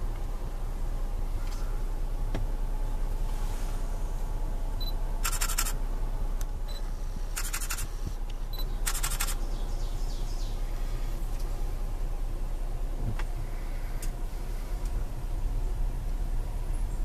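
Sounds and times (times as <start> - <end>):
car hum: 0.0 - 17.0
camera focus beep: 4.8 - 5.8, 7.4 - 7.9, 8.5 - 9.4
rapid camera shutter clicks: 5.2 - 5.8, 7.3 - 7.9, 8.8 - 9.4.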